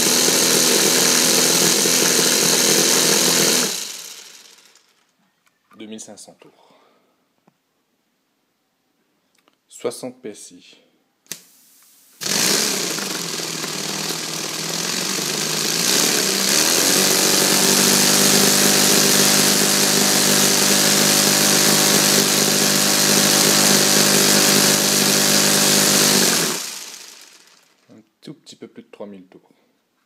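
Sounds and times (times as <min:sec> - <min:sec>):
compressed-air engine running: 0:00.0 - 0:04.7, 0:12.2 - 0:27.5
exhaust hiss: 0:11.3 - 0:12.2.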